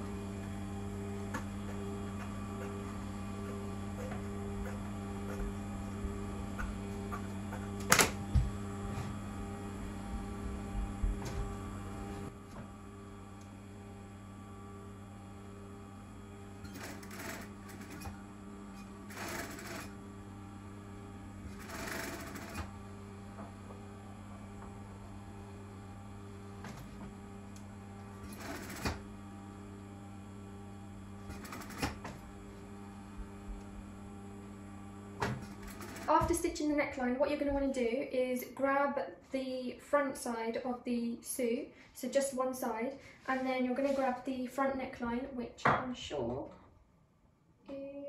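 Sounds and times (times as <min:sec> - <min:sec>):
sewing machine motor humming: 0:00.0 - 0:37.0
sewing machine stitching: 0:16.6 - 0:20.0, 0:21.4 - 0:22.8, 0:28.1 - 0:29.0, 0:31.2 - 0:32.3, 0:35.2 - 0:36.5.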